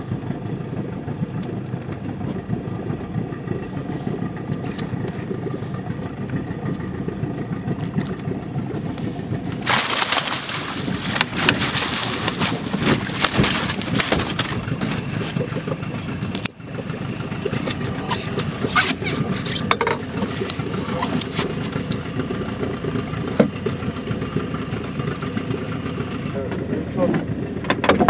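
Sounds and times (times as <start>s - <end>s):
steady hum: 0.0s - 27.1s
water splashing: 4.8s - 24.1s
knocks and rustles of net: 9.5s - 15.6s.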